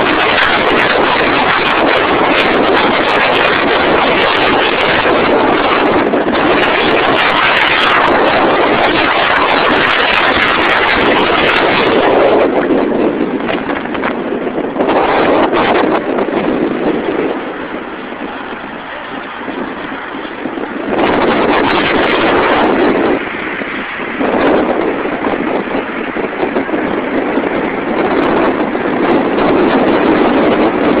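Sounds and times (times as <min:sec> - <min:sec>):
wind rushing: 0:00.0 - 0:31.0
road traffic: 0:15.9 - 0:30.6.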